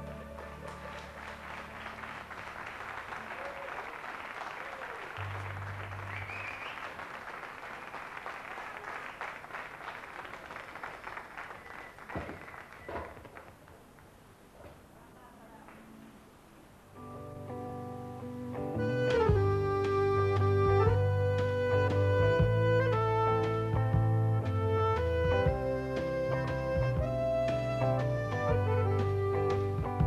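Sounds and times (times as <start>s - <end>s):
audience applauding: 0.0s - 14.2s
whistle: 6.1s - 7.0s, 11.6s - 13.0s.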